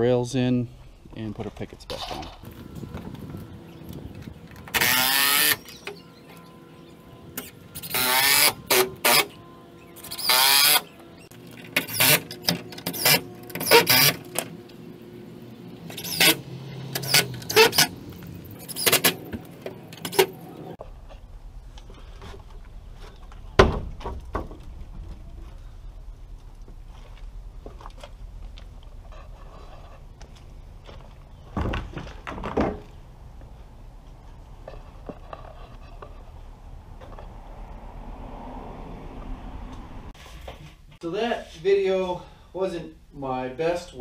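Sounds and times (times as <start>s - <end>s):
cordless drill driving screws: 4.7s - 5.7s, 11.8s - 14.2s.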